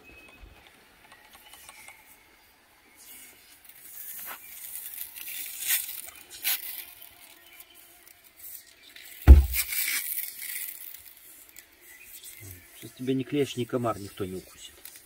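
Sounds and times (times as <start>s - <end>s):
loud thump: 9.3s - 9.7s
pressure sprayer hissing: 9.3s - 9.7s.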